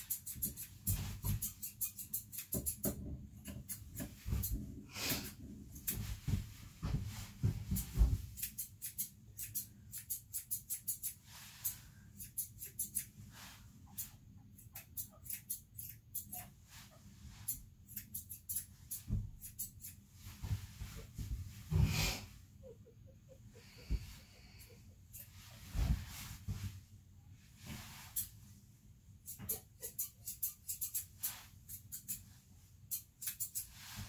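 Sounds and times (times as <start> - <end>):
scratchy brush strokes on dog coat: 27.5 - 28.4, 33.6 - 34.0.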